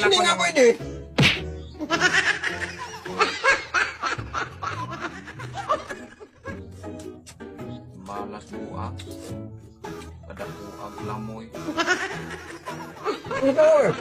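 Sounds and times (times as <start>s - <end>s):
background music: 0.0s - 14.0s
laughter: 1.8s - 6.6s, 11.7s - 14.0s.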